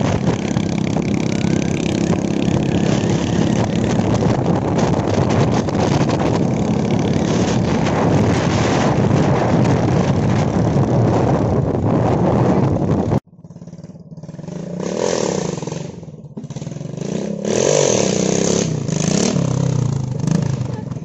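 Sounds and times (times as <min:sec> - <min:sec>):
dirt bike engine revving: 0:00.0 - 0:11.3, 0:12.0 - 0:20.9
wind rush: 0:00.0 - 0:13.2.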